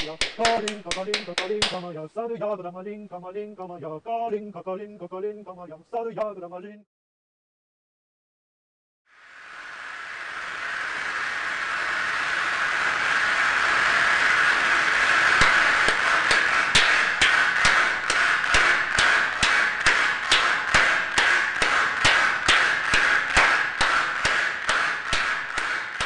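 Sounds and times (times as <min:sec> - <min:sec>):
synthesised audience applause: 0:00.0 - 0:01.8, 0:14.3 - 0:26.0
live hand claps: 0:00.0 - 0:01.9, 0:15.3 - 0:26.0.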